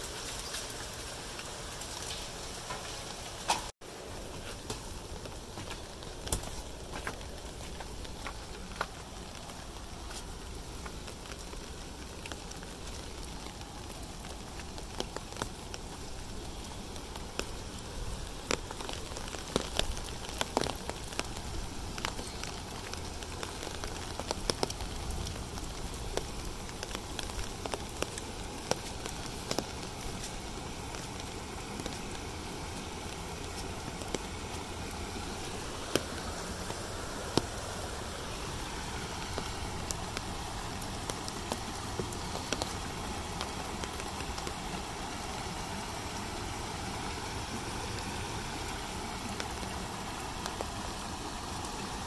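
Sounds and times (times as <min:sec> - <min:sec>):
hailstones and drops ticking: 0:00.0 - 0:52.0
rain hissing: 0:00.0 - 0:52.0.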